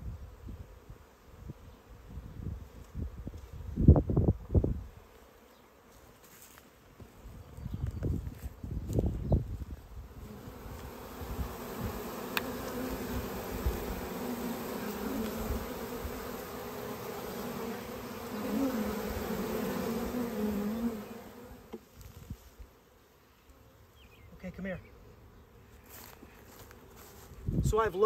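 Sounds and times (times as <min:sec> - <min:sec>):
bees buzzing: 0:08.5 - 0:27.4.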